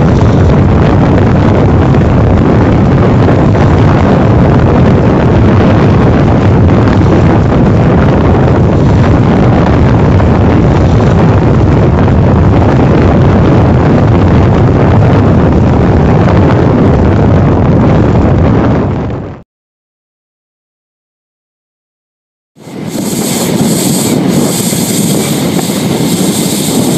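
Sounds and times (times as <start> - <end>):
train wheels rumbling on track: 0.0 - 17.2, 22.6 - 26.9.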